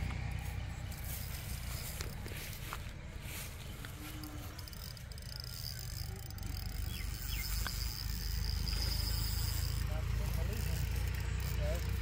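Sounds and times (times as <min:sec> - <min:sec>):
insect buzzing: 0:03.5 - 0:12.0.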